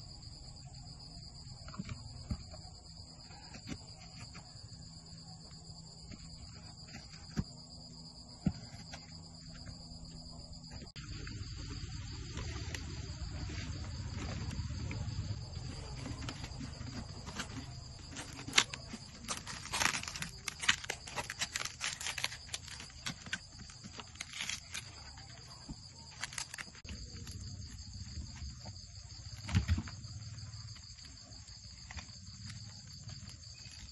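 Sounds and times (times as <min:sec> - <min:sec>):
high-pitched insect chorus: 0:00.0 - 0:33.9
banana leaves crinkling and rustling: 0:08.7 - 0:29.9.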